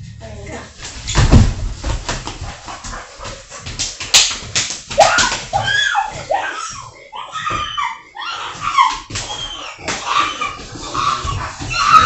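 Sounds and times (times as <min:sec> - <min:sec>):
people wrestling on wooden floor: 0:00.8 - 0:12.0
dog whining: 0:05.0 - 0:12.0.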